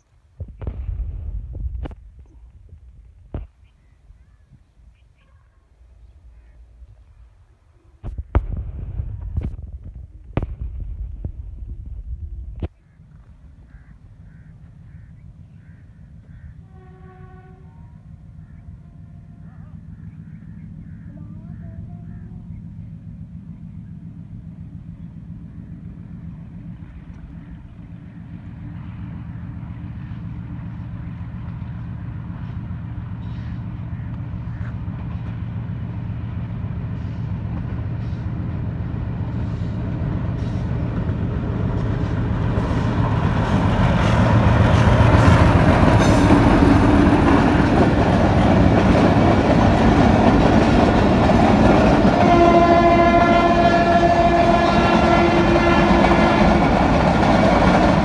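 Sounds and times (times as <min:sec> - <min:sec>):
diesel locomotive engine drone: 0:00.0 - 0:58.0
locomotive horn blast: 0:16.6 - 0:18.2, 0:52.1 - 0:56.7
train wheels clattering: 0:39.4 - 0:52.5.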